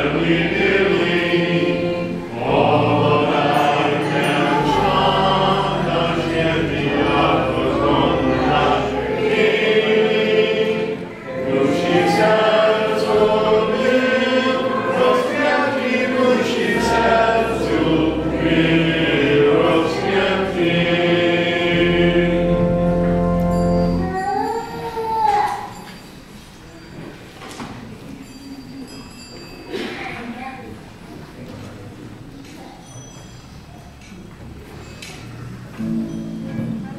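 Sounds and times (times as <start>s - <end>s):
choir singing a hymn: 0.0s - 24.2s
low accompanying tones: 0.0s - 25.0s.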